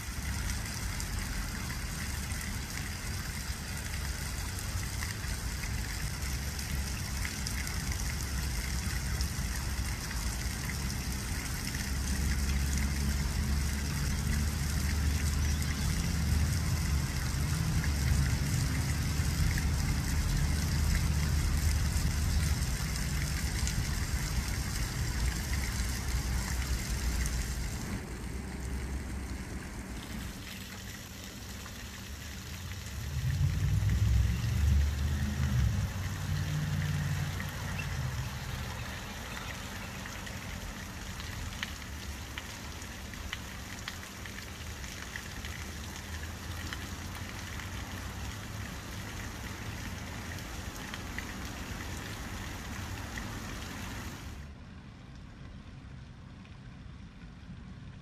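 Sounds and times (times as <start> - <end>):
fountain water splashing: 0.0 - 58.0
low rumble: 33.0 - 36.1.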